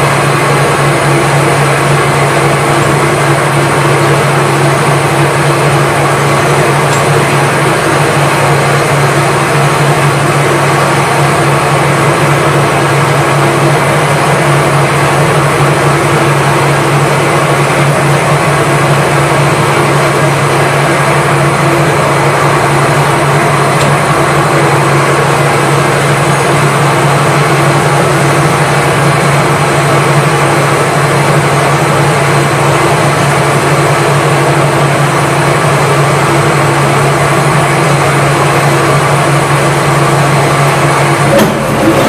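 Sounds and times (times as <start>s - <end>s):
high whine: 0.0s - 31.9s
lathe motor droning: 0.0s - 42.0s.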